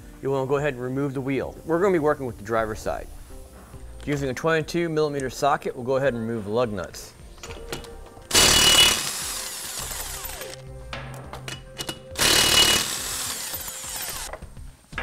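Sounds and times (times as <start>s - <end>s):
impact wrench hammering: 7.6s - 14.4s.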